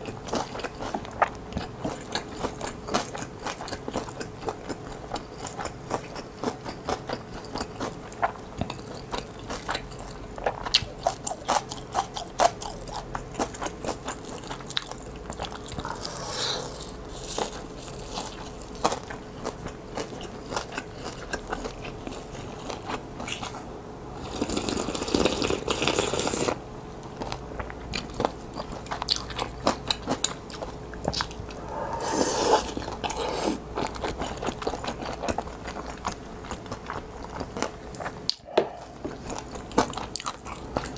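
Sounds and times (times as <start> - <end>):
wet chewing and crunching: 0.0 - 23.7, 24.3 - 32.0, 32.6 - 40.9
slurping: 15.7 - 17.0, 31.2 - 34.0.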